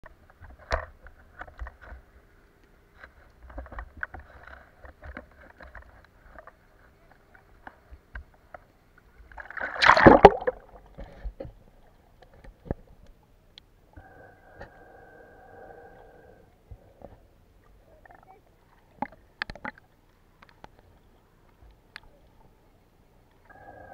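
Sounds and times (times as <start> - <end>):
splash and gurgle: 9.4 - 11.0
water slapping against camera: 9.4 - 11.5
muffled underwater clicks: 18.9 - 22.4.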